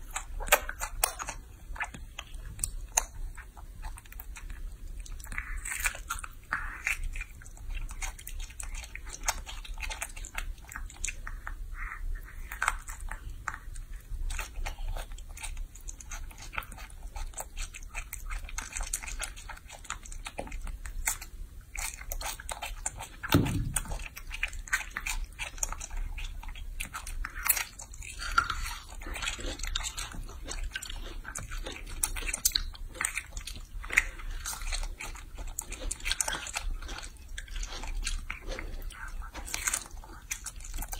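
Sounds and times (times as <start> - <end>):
monkey chewing fruit: 0.0 - 40.9
low thump: 23.3 - 24.0.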